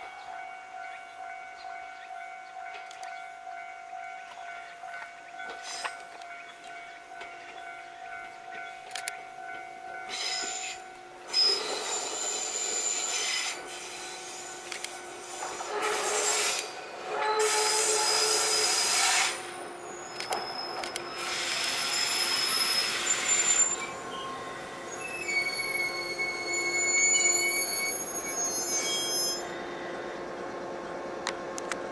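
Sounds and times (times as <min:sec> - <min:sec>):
wheel and brake squeals: 0:05.5 - 0:06.1, 0:10.1 - 0:14.5, 0:15.2 - 0:30.2
hissing rail noise: 0:08.1 - 0:31.9.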